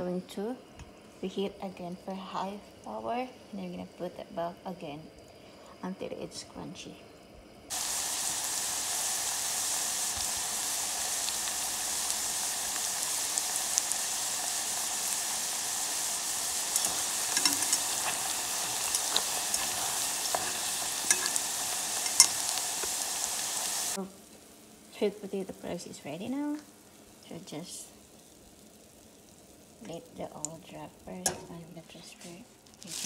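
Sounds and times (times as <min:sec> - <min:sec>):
fries sizzling in hot oil: 0:07.7 - 0:33.0
oil crackles and pops: 0:07.7 - 0:33.0.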